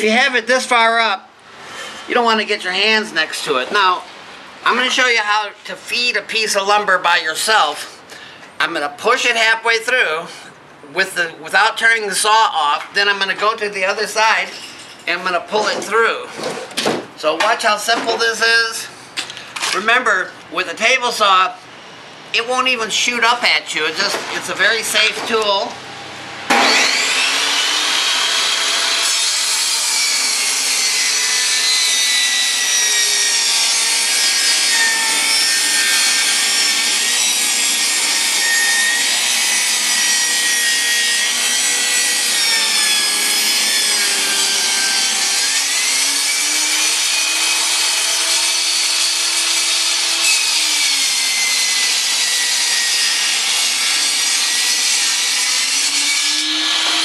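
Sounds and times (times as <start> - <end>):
table saw cutting wood: 24.0 - 57.0.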